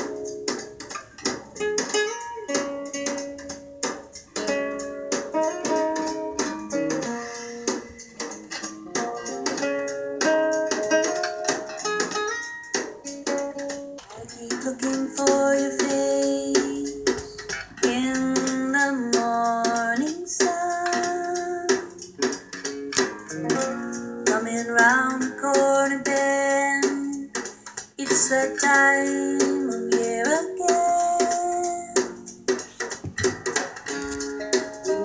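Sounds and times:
plucked guitar: 0.0s - 35.0s
person singing: 14.0s - 22.4s, 23.3s - 32.3s.

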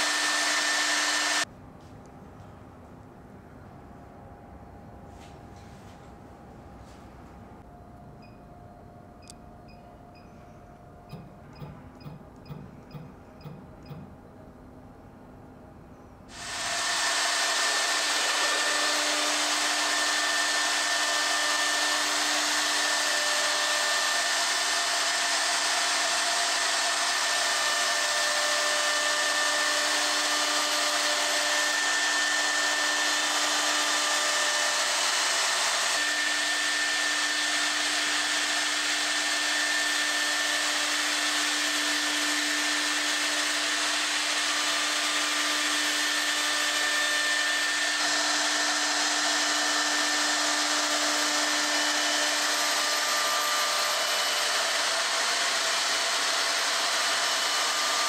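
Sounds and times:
router motor whining: 0.0s - 1.5s, 16.3s - 58.0s.

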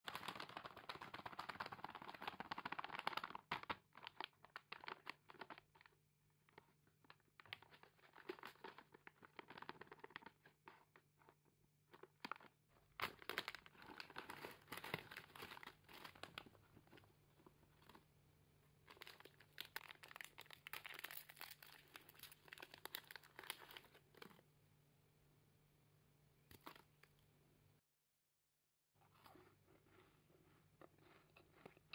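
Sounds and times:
plastic wrappers rustling: 0.1s - 5.9s, 18.9s - 24.0s
plastic snack bag crinkling: 0.1s - 18.1s, 18.8s - 24.4s.

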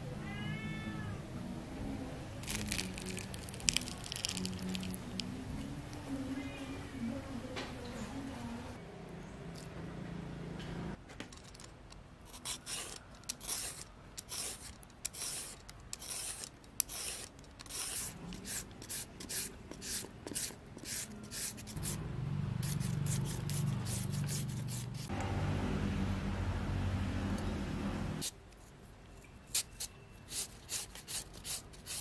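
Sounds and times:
low steady hum: 1.1s - 11.0s.

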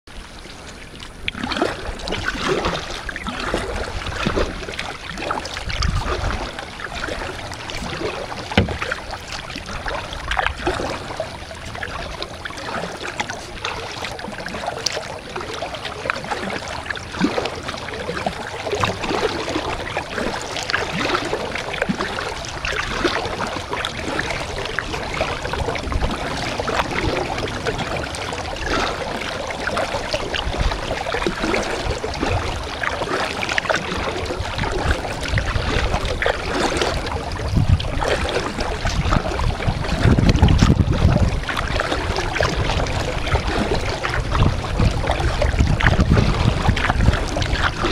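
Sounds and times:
paddle splashing in water: 0.1s - 47.9s
water dripping off paddle: 0.7s - 31.8s
low bumps: 8.4s - 9.4s.

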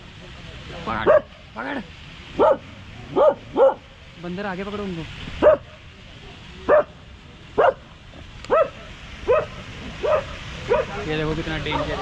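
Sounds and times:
dog barking: 1.0s - 1.3s, 2.4s - 3.8s, 5.4s - 5.8s, 6.7s - 7.0s, 7.6s - 7.8s, 8.5s - 11.0s.

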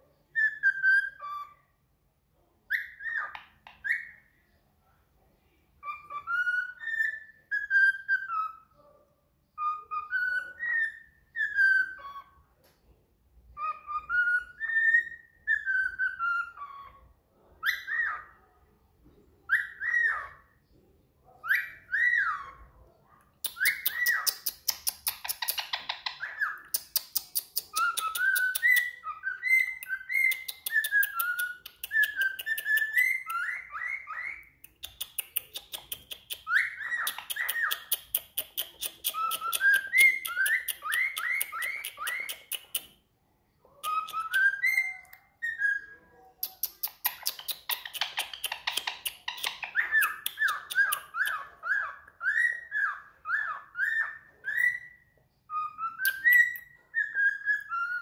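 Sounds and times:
cockatiel whistling a tune: 0.3s - 1.6s, 5.8s - 8.7s, 9.6s - 12.4s, 13.6s - 17.0s, 19.5s - 20.4s, 21.4s - 22.6s, 27.6s - 34.5s, 39.0s - 42.6s, 43.9s - 46.0s, 47.1s - 58.0s.

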